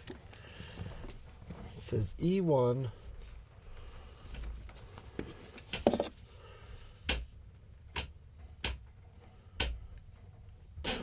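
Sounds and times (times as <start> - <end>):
sharp clicks and taps: 7.9 - 8.9.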